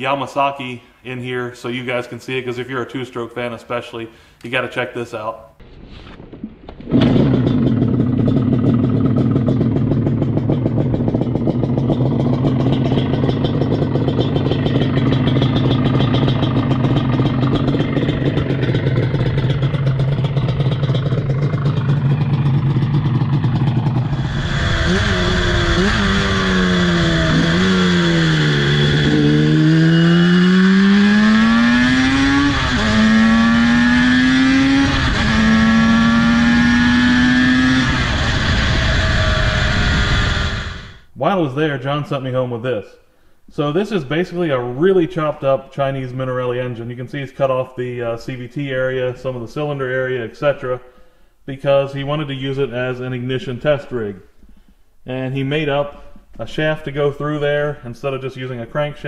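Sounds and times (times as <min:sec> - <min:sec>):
two-stroke motorcycle engine: 0:06.9 - 0:41.1.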